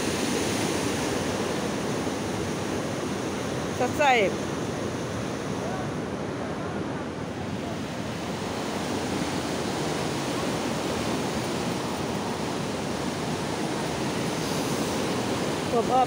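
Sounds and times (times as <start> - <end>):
water rushing through dam gates: 7.2 - 16.0.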